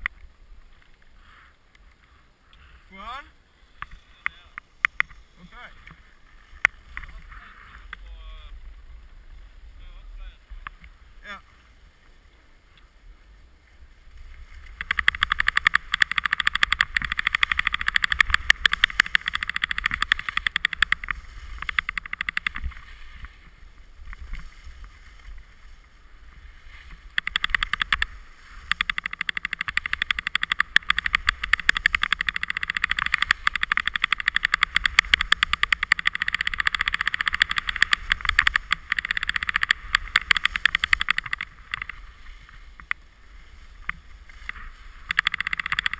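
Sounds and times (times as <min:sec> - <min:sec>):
skis scraping over snow: 0:05.2 - 0:45.9.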